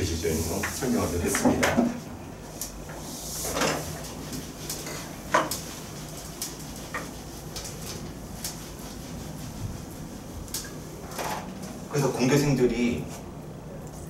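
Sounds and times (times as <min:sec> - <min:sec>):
eraser rubbing on whiteboard: 0:03.0 - 0:10.6.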